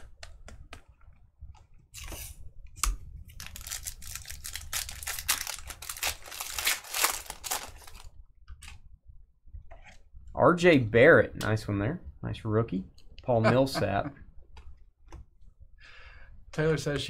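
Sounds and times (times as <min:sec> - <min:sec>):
foil wrapper crackling: 0:03.3 - 0:08.1.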